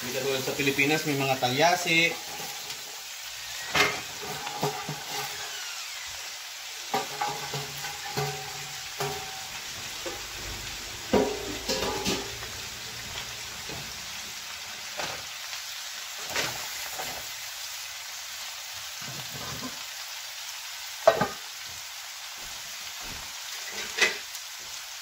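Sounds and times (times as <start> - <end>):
vegetables sizzling in a frying pan: 0.0 - 25.0
spatula knocking against pan: 7.0 - 9.4.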